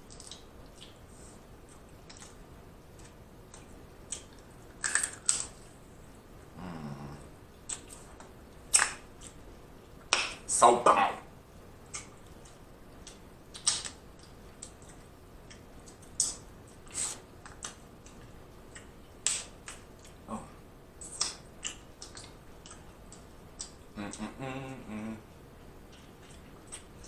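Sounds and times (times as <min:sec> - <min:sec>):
seafood shell cracking: 0:04.8 - 0:05.5.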